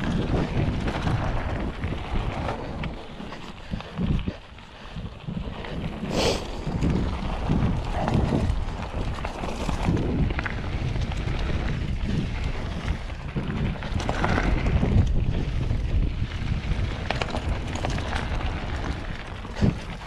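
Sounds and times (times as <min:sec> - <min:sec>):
bike rattling over bumps: 0:00.0 - 0:20.0
bike tyres rolling over dirt: 0:00.0 - 0:20.0
wind noise on microphone: 0:00.0 - 0:20.0.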